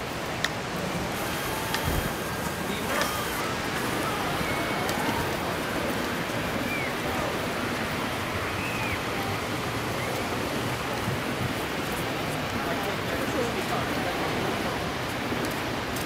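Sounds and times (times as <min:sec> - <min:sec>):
faint distant voices: 0:00.0 - 0:15.9
ocean surf hissing: 0:00.0 - 0:16.0.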